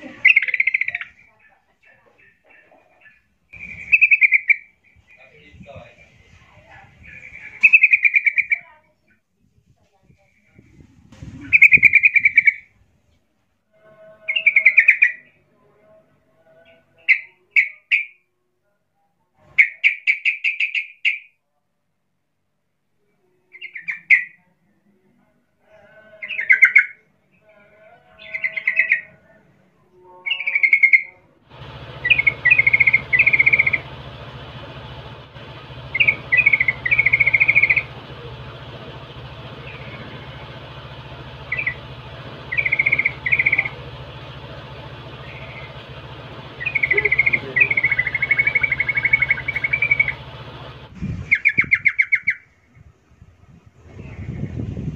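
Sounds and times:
bulbul calling: 0:00.0 - 0:01.6, 0:02.2 - 0:05.4, 0:06.9 - 0:08.7, 0:11.4 - 0:12.7, 0:14.3 - 0:15.3, 0:30.3 - 0:52.5.

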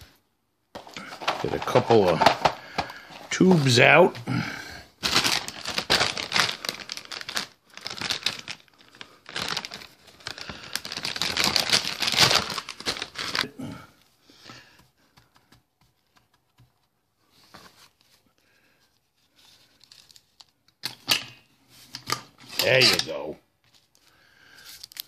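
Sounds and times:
plastic bag crinkling: 0:00.8 - 0:13.6.

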